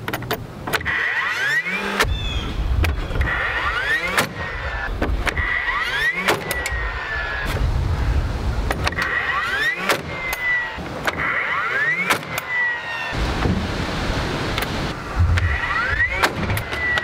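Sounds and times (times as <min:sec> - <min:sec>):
nail gun whining: 0:00.7 - 0:07.5, 0:08.7 - 0:13.1, 0:15.4 - 0:17.0
nail gun shots: 0:12.0 - 0:12.5.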